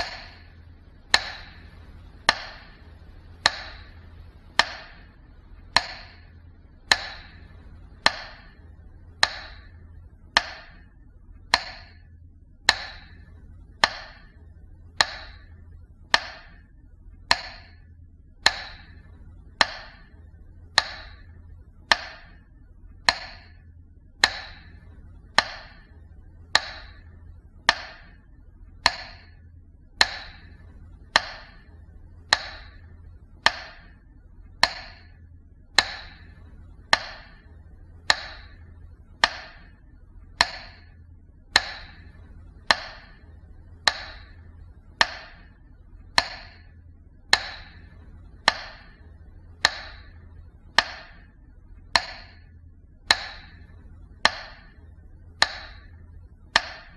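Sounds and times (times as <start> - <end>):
faint low hum: 0.0 - 56.9
sharp ringing ticks: 0.0 - 56.9.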